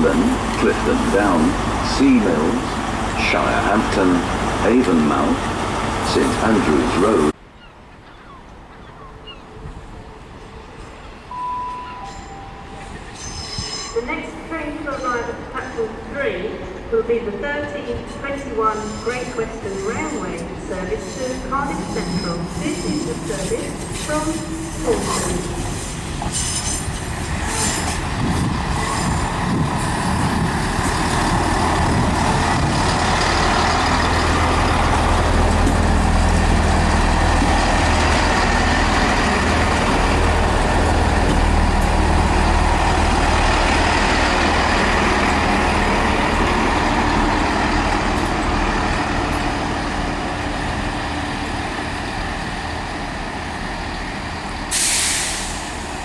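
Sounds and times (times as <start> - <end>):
diesel train engine rumble: 0.0 - 7.4, 8.5 - 56.0
air release hiss: 54.7 - 55.6.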